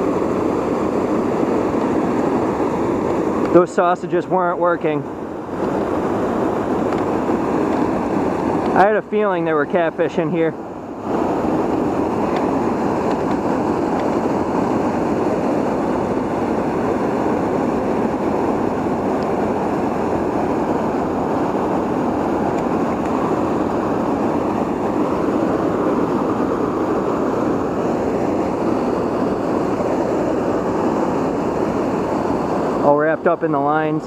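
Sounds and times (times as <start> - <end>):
flowing river water: 0.0 - 34.0.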